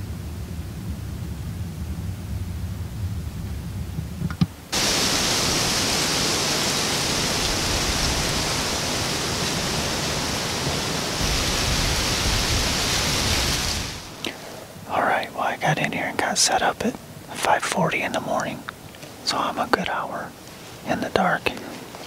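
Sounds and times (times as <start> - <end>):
low rumble: 0.0 - 4.2
steady even hiss: 4.7 - 22.0.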